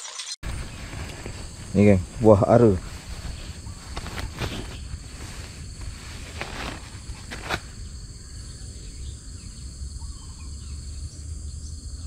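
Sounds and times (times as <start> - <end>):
hand rustling: 0.4 - 7.8
insects droning: 0.4 - 12.0.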